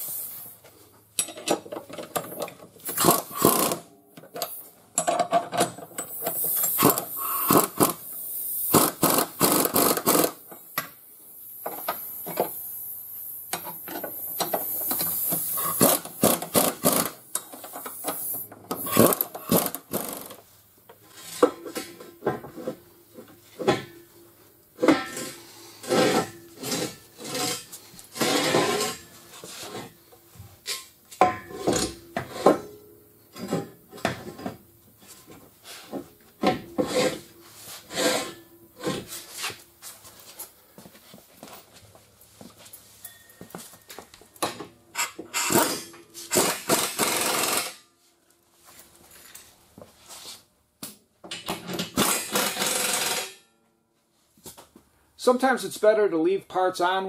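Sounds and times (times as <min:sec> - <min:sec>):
metal clamps clanking and scraping: 0:01.1 - 0:03.6, 0:04.3 - 0:07.1, 0:21.0 - 0:24.1, 0:24.8 - 0:30.0, 0:30.6 - 0:34.6, 0:35.2 - 0:39.6, 0:43.8 - 0:47.8
pneumatic impact wrench: 0:02.2 - 0:10.5, 0:13.5 - 0:20.4, 0:44.4 - 0:47.8, 0:51.4 - 0:53.4.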